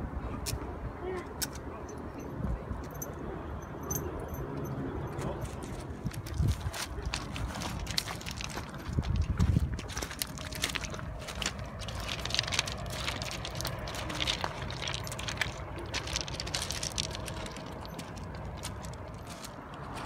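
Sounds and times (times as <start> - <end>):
low steady rumble: 1.8 - 20.0
footsteps crunching on pebbles: 5.4 - 20.0.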